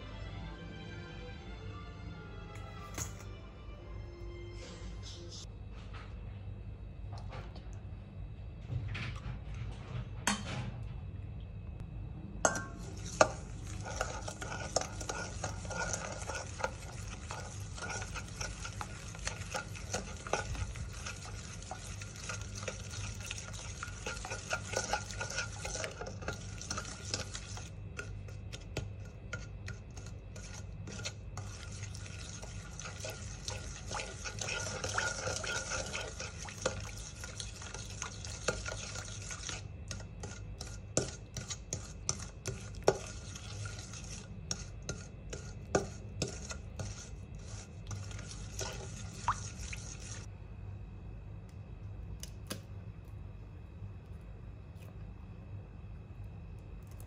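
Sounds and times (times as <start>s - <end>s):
utensil scraping and clinking bowl: 12.4s - 50.3s.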